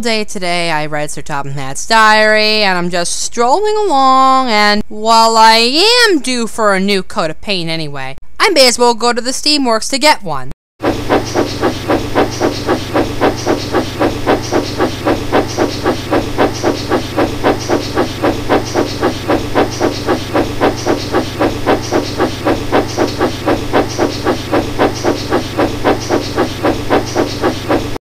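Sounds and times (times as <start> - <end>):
steady low hum: 10.8 - 28.0.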